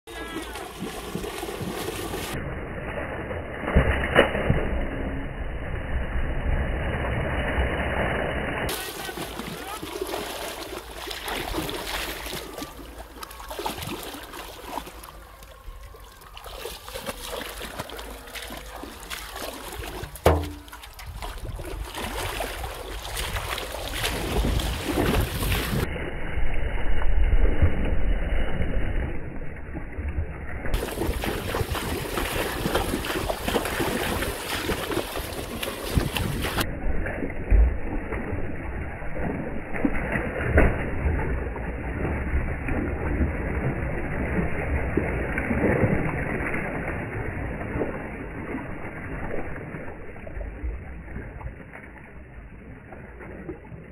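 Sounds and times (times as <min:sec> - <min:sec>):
water splashing from wading: 0:00.1 - 0:05.2, 0:05.8 - 0:26.0, 0:27.2 - 0:53.9
sharp knock: 0:20.2 - 0:20.7
wind buffeting microphone: 0:21.0 - 0:25.9, 0:30.8 - 0:36.7.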